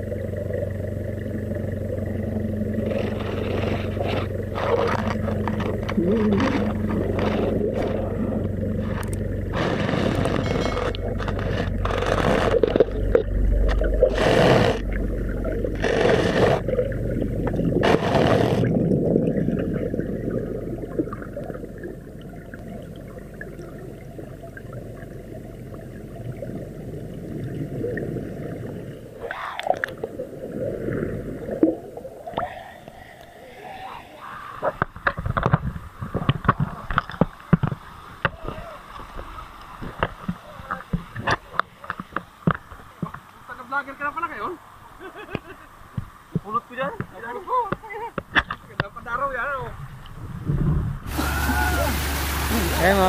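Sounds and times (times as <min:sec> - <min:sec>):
water rushing bursts: 0:00.0 - 0:35.1, 0:50.4 - 0:53.0
water splashing: 0:00.0 - 0:44.4, 0:46.4 - 0:53.0
muffled underwater churning rumble: 0:00.0 - 0:53.0.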